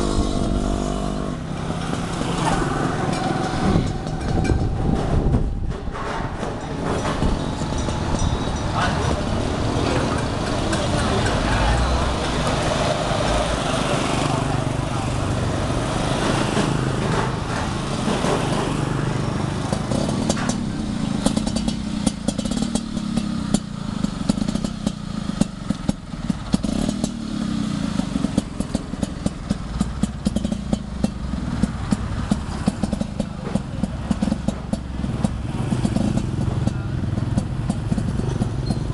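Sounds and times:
scooter engine idling: 0:00.0 - 0:38.9.

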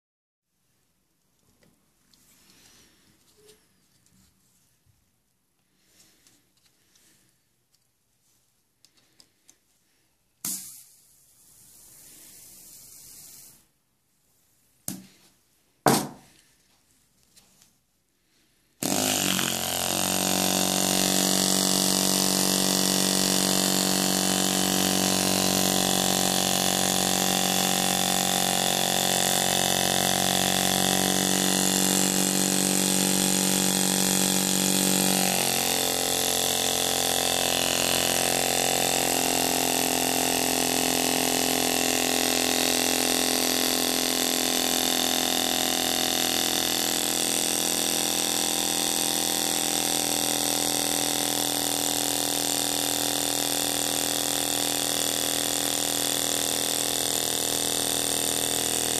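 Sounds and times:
small model engine running: 0:18.8 - 0:58.9.

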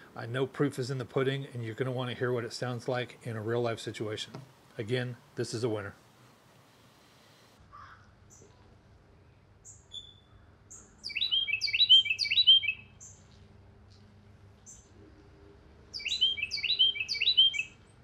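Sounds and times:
songbird singing: 0:09.6 - 0:18.0
faint low hum: 0:12.9 - 0:16.0.

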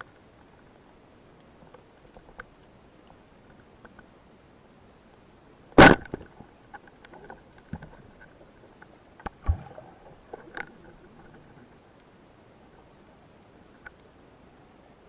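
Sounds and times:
speargun firing crack: 0:05.8 - 0:06.2
low thump: 0:09.4 - 0:09.8.

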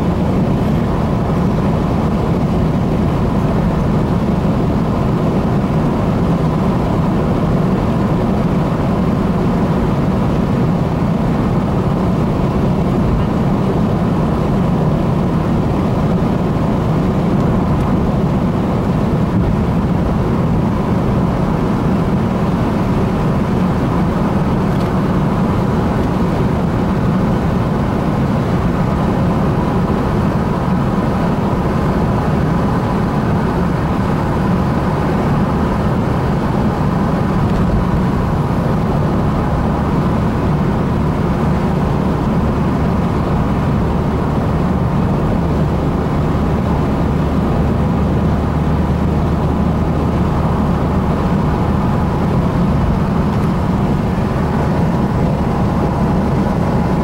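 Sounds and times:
car road and engine rumble: 0:00.0 - 0:57.0.

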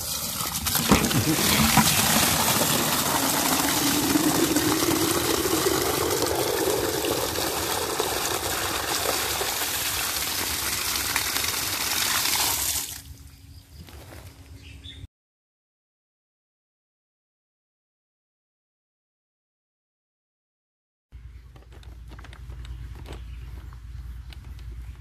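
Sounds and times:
water gushing into plastic bucket: 0:00.0 - 0:13.1.

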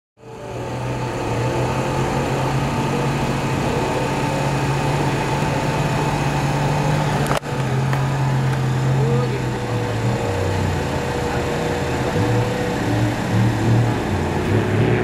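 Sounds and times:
engine drone with low hum: 0:00.2 - 0:15.0.

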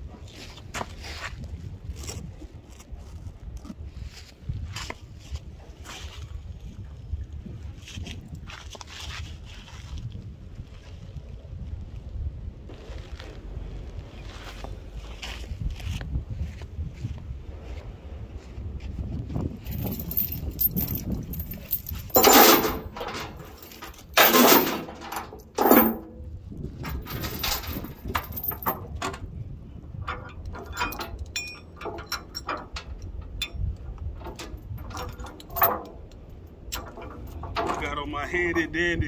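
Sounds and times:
steel chain rattling and clanking: 0:19.6 - 0:29.3, 0:30.0 - 0:38.7.

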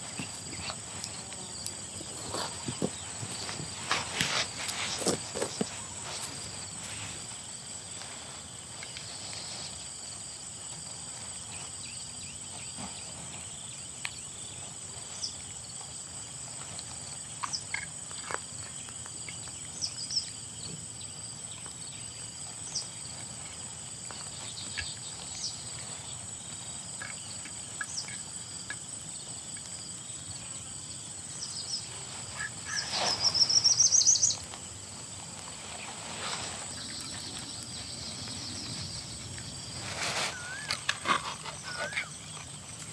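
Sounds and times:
rising chirp: 0:40.2 - 0:42.3
high-pitched insect drone: 0:40.3 - 0:42.8.

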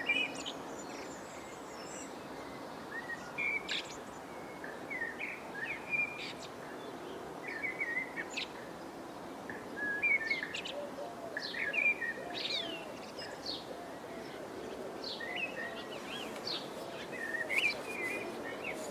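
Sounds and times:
steady outdoor hiss: 0:00.0 - 0:18.9
birds chirping: 0:09.5 - 0:18.9.

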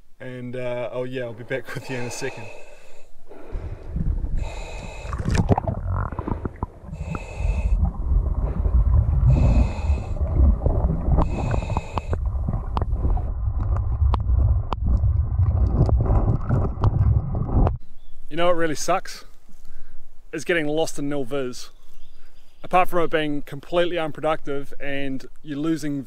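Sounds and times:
hissing regulator inhalations: 0:01.7 - 0:10.5, 0:11.2 - 0:12.2
rumbling exhaust bubbles: 0:03.3 - 0:17.8.

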